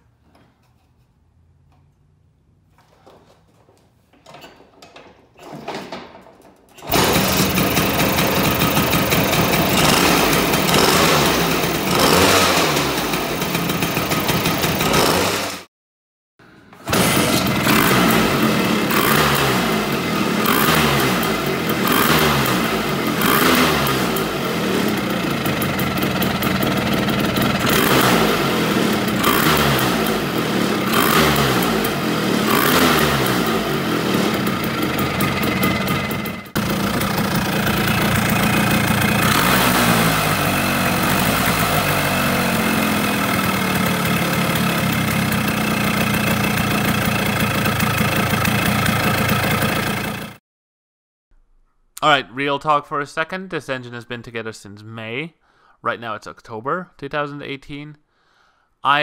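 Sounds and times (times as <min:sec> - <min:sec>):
scooter engine kick-started: 0:04.2 - 0:15.7, 0:16.7 - 0:50.4
two-stroke engine revving: 0:06.8 - 0:15.7, 0:16.8 - 0:50.4.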